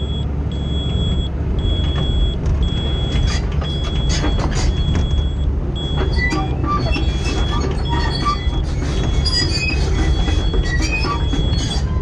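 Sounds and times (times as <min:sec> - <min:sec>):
high beeps: 0:00.0 - 0:06.3
heavy machine engine rumble: 0:00.0 - 0:12.0.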